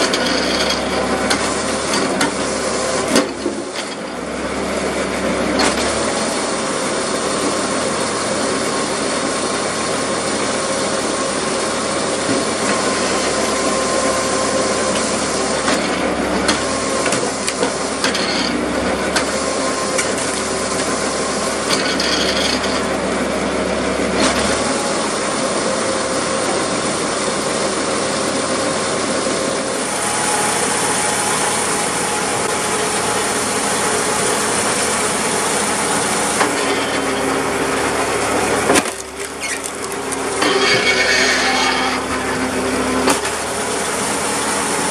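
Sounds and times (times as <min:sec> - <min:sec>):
hydraulic wood splitter running: 0:00.0 - 0:44.9
wood creaking and cracking: 0:38.6 - 0:42.1.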